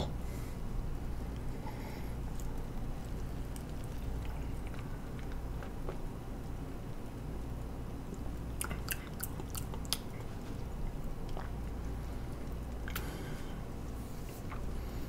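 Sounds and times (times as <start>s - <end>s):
steady low hum: 0.0s - 15.0s
mouth clicks and lip smacks: 8.1s - 10.3s.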